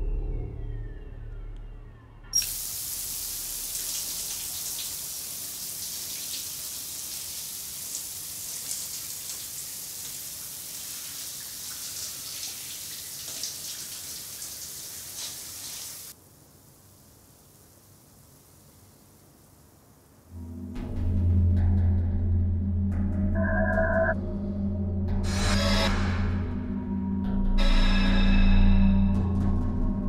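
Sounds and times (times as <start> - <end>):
shower head spraying water: 2.4 - 6.5.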